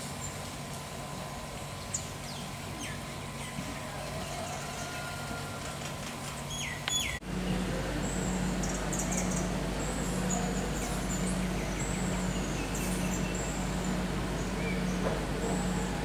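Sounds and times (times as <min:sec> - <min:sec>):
birds chirping and whistling: 0:01.7 - 0:05.0, 0:06.3 - 0:07.2, 0:08.0 - 0:16.0
low hum: 0:05.2 - 0:16.0.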